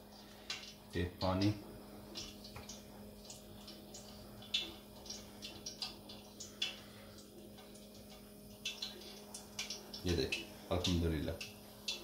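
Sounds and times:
faint steady hum: 0:00.0 - 0:12.0.

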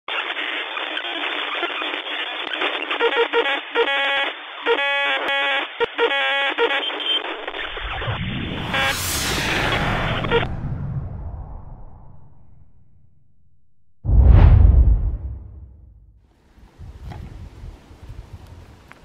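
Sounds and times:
radio-like static hiss: 0:00.1 - 0:09.0
low rumble: 0:08.0 - 0:16.2.

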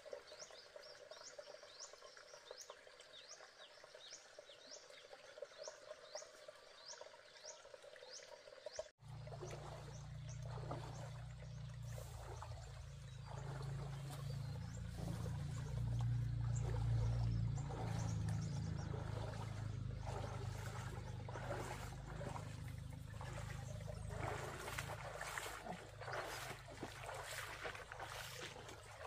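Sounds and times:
stream trickling: 0:00.0 - 0:29.0
person wading through water: 0:09.0 - 0:29.0
steady low rumble: 0:09.6 - 0:25.1.

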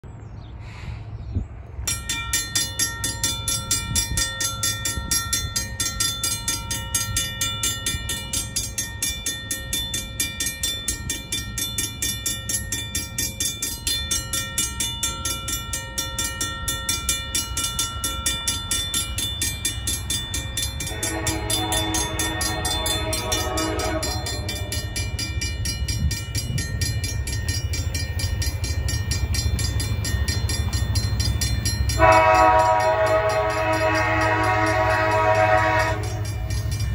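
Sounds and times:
crossing bell ringing: 0:01.8 - 0:36.9
train horn: 0:20.8 - 0:24.9, 0:31.9 - 0:36.4.

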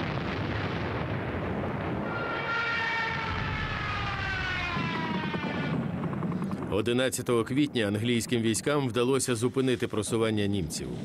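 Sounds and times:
propeller aircraft engine drone: 0:01.6 - 0:11.0
steady low rumble: 0:03.2 - 0:11.0.

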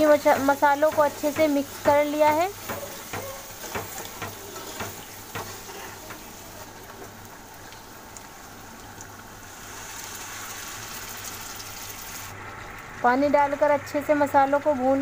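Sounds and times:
masala sizzling in a pan: 0:00.0 - 0:15.0
ladle knocking against pan: 0:00.2 - 0:06.3
water poured into hot pan: 0:07.5 - 0:12.8.

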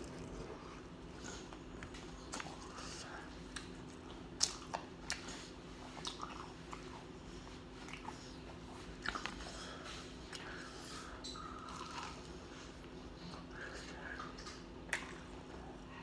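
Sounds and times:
person chewing crunchy food: 0:00.0 - 0:10.6, 0:11.4 - 0:12.9.

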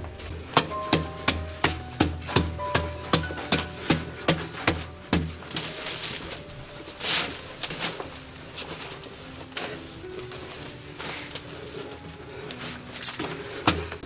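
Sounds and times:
soil scraping: 0:00.0 - 0:14.0
digging tool chopping earth: 0:00.3 - 0:06.2.

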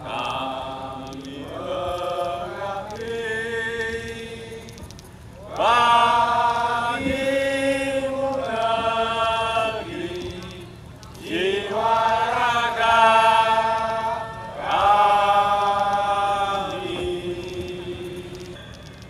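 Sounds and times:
voices singing long notes in unison: 0:00.0 - 0:18.8.

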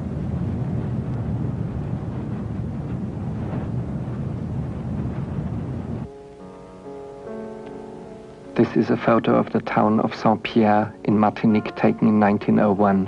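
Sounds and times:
low rumbling roar: 0:00.0 - 0:06.1.

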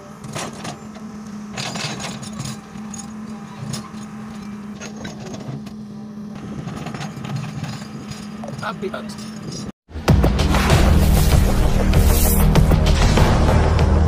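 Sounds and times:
excavator diesel engine running: 0:00.0 - 0:10.1.

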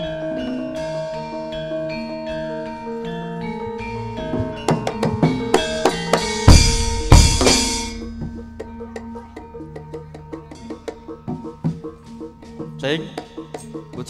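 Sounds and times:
sustained metallophone notes: 0:00.0 - 0:13.8
rapid drum strokes: 0:05.2 - 0:09.0
crashing percussion hits: 0:05.2 - 0:09.7.

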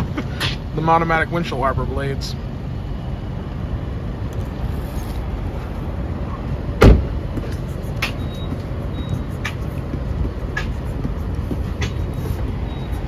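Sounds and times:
car cabin rumble: 0:04.3 - 0:13.0
loud thump: 0:06.8 - 0:07.5.

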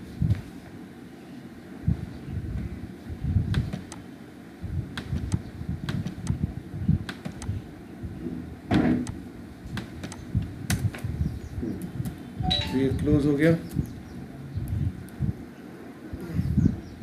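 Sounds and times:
low rumbling background noise: 0:00.0 - 0:17.0
computer mouse clicking: 0:03.8 - 0:04.0.

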